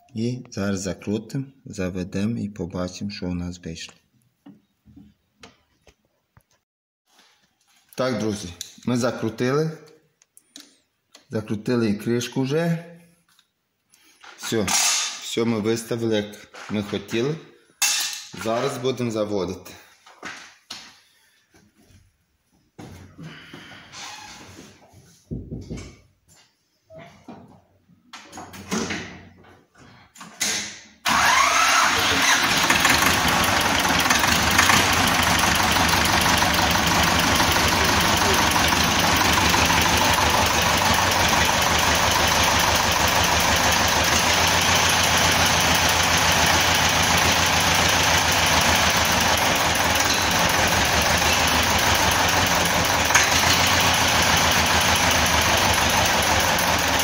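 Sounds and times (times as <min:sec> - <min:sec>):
tractor diesel engine idling: 0:31.1 - 0:57.0.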